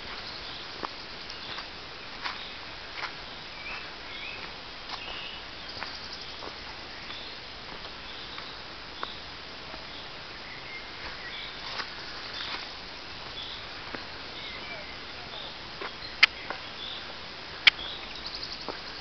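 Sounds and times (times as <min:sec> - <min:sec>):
steady hiss: 0:00.0 - 0:19.0
high bird chirps: 0:17.6 - 0:18.7.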